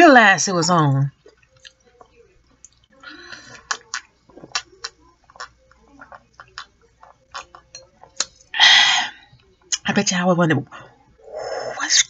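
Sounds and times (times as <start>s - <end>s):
person gulping a drink: 3.5s - 8.3s.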